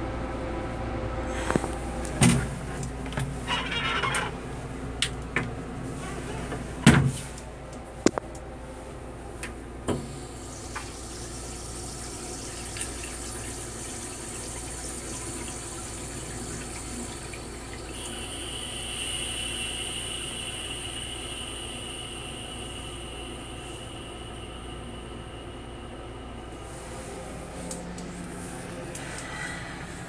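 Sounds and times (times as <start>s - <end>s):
toilet flushing water hiss: 9.8s - 30.0s.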